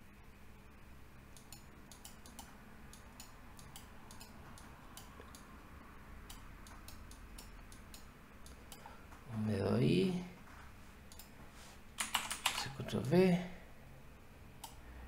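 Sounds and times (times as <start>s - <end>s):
low steady hum: 0.0s - 15.0s
computer mouse clicking: 1.3s - 5.5s, 6.3s - 8.9s, 11.1s - 11.3s, 12.0s - 12.7s, 14.6s - 14.8s.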